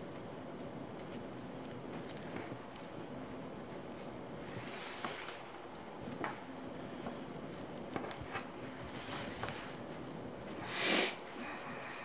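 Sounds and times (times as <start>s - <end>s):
steady hiss: 0.0s - 12.0s
rope rustling: 1.0s - 10.6s.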